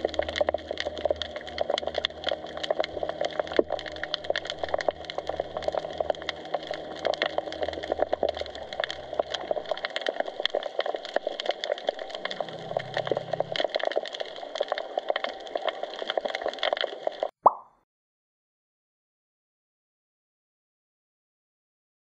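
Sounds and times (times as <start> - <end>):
low hum: 0.0 - 15.0
underwater crackling clicks: 0.0 - 17.7.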